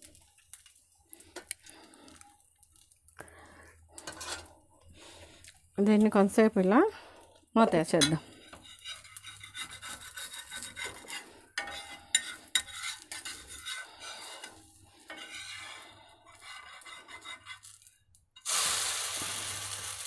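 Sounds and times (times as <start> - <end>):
steady sizzle: 0.0 - 20.0
metal spatula scraping a griddle: 4.0 - 4.6, 8.0 - 18.0.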